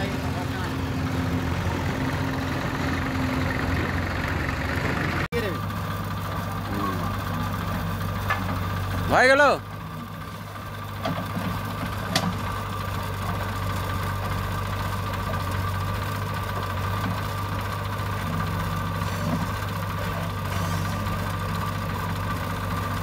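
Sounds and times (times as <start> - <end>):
tractor engine running: 0.0 - 23.0
backhoe loader digging sand: 9.8 - 23.0.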